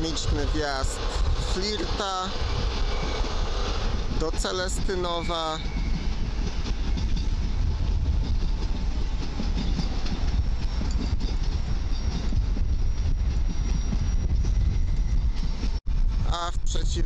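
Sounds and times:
train rumbling on rails: 0:00.0 - 0:17.0.

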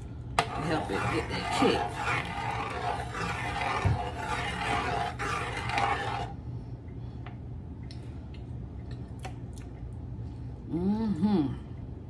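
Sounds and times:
metal spoon scraping a pot: 0:00.4 - 0:06.3.

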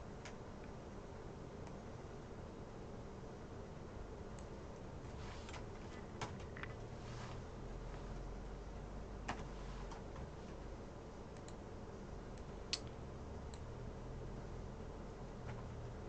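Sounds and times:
steady low hum: 0:00.0 - 0:16.0
keyboard and mouse clicks: 0:05.4 - 0:06.8, 0:09.2 - 0:10.3, 0:11.3 - 0:11.6, 0:12.4 - 0:13.7.

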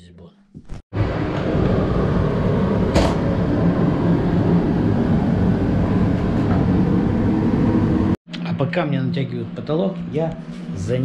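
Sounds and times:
machine running loudly: 0:01.0 - 0:08.2.

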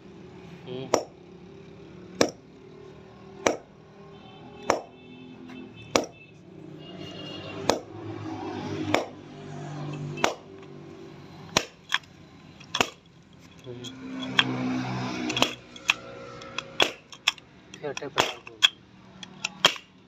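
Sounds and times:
sharp percussive hits: 0:02.2 - 0:02.4, 0:11.5 - 0:13.0, 0:13.9 - 0:17.4.

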